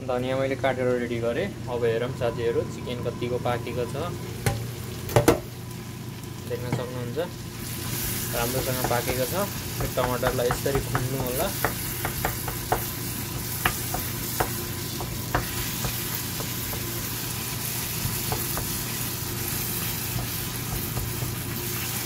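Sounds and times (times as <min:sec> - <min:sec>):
curry sizzling in a frying pan: 0:04.1 - 0:22.0.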